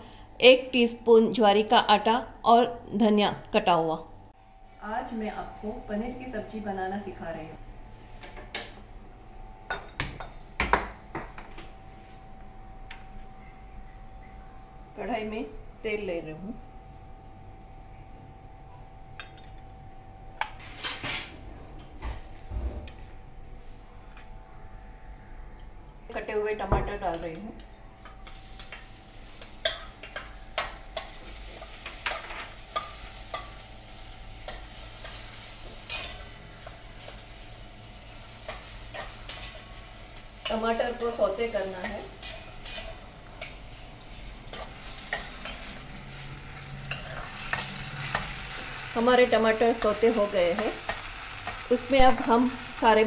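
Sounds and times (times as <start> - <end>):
faint steady hum: 0.0 - 20.6
tomatoes sizzling in oil: 28.2 - 53.0.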